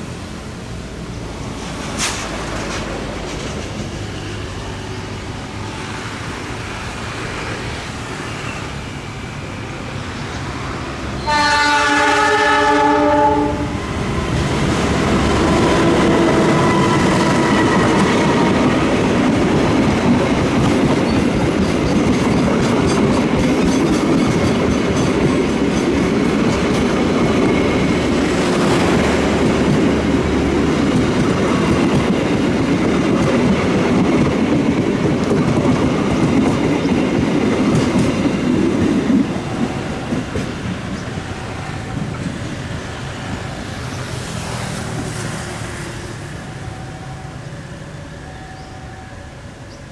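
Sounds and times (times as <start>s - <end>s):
train wheels clickety-clack: 1.4s - 4.9s, 13.8s - 46.3s
train horn blast: 11.2s - 13.8s.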